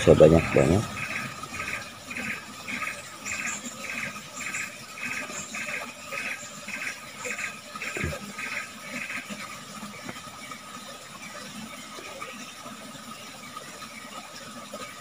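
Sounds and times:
insects pulsed buzzing: 0:00.0 - 0:10.6.

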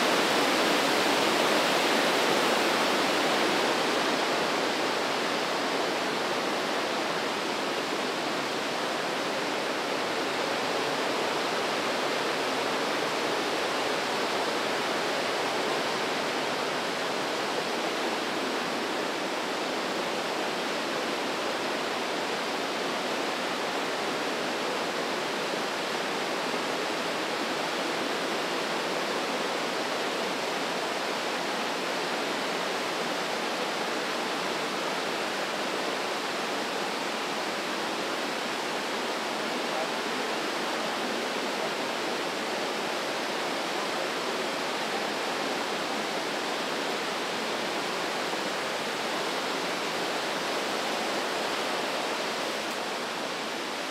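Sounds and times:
river whitewater roaring: 0:00.0 - 0:53.9.

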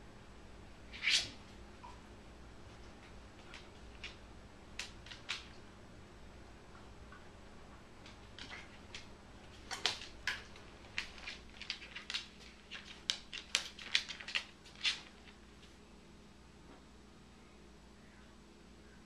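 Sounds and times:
dog claws clicking on wood floor: 0:02.8 - 0:05.6, 0:08.0 - 0:15.7.

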